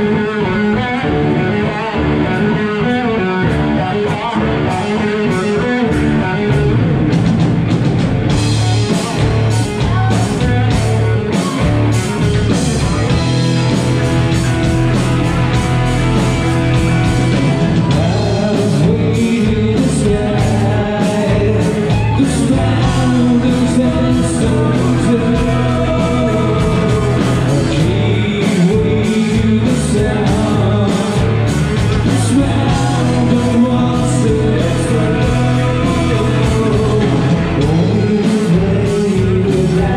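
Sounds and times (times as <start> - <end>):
live rock band with singing: 0.0 - 39.9
drums and cymbals: 4.1 - 39.9.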